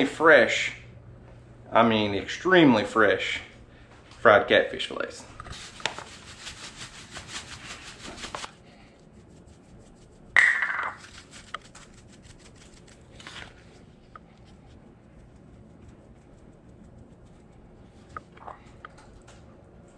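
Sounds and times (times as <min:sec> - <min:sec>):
cornmeal pouring into plastic tub: 0:05.6 - 0:08.5
spice shakers tapping: 0:10.3 - 0:12.6.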